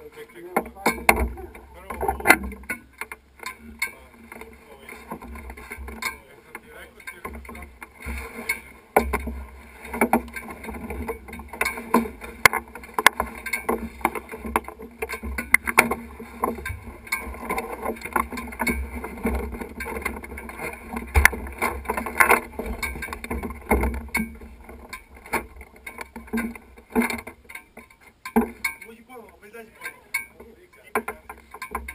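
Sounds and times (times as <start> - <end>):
clicks and rustling: 0.0 - 31.9.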